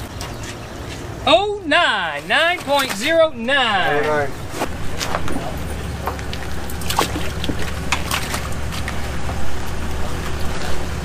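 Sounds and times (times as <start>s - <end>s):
steady low rumble: 3.1s - 11.0s
water splashing and dripping: 5.0s - 10.8s.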